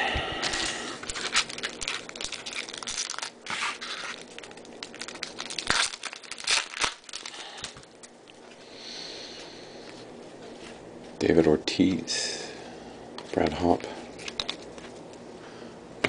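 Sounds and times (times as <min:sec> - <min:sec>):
foil wrapper crinkling and tearing: 0:00.4 - 0:08.1, 0:14.1 - 0:15.0.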